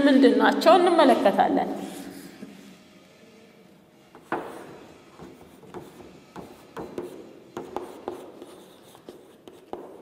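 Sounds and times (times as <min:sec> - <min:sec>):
pen tapping and strokes: 0:04.2 - 0:10.0.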